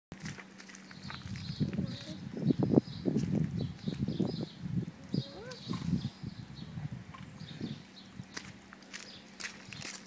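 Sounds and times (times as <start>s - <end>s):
child's footsteps on wet pavement: 0.1s - 2.2s, 8.2s - 10.0s.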